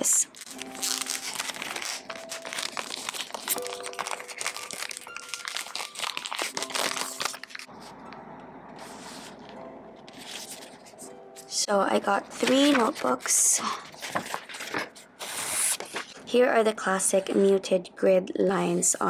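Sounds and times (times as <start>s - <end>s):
soft background music: 0.0s - 19.0s
plastic wrapping crinkling: 0.2s - 7.9s, 12.3s - 16.3s.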